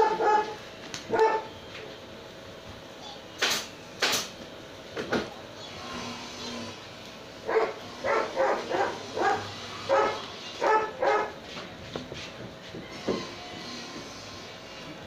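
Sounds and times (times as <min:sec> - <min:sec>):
dog barking: 0:00.0 - 0:01.6, 0:07.4 - 0:11.4.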